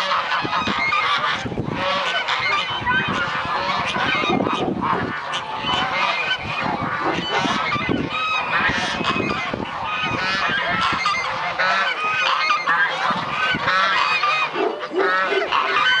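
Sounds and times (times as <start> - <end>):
geese honking: 0.0 - 16.0.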